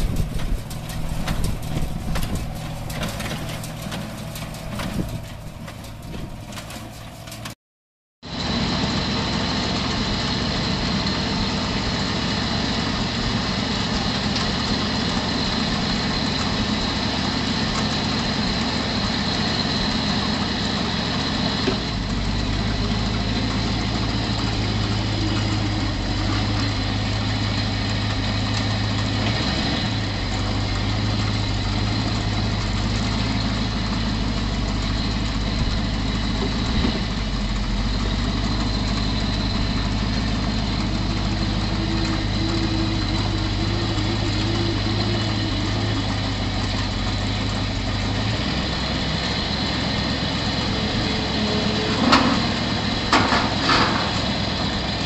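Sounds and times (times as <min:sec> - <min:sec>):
bale wagon engine running: 0:00.0 - 0:07.6, 0:08.2 - 0:55.0
baler clattering: 0:00.0 - 0:07.6
tractor running: 0:00.0 - 0:07.6, 0:08.2 - 0:55.0.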